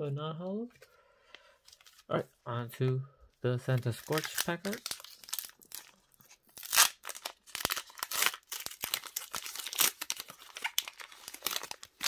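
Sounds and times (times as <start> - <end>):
foil wrapper tearing and crinkling: 3.9 - 12.0.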